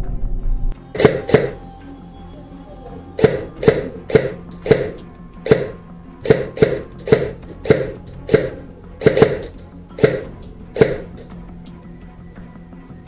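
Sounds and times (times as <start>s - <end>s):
airsoft rifle shots: 1.0s - 1.6s, 3.2s - 11.2s.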